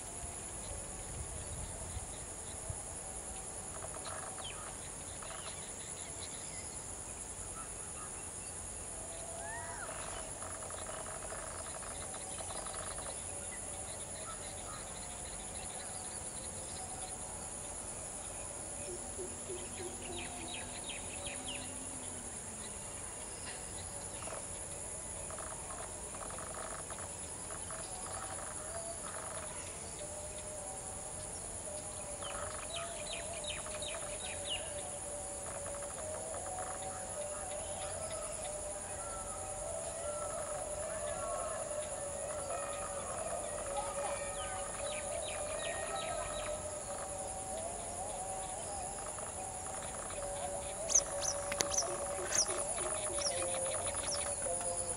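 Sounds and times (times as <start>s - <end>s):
high-pitched insect chorus: 0.0s - 54.9s
birds chirping and calling: 47.8s - 54.9s.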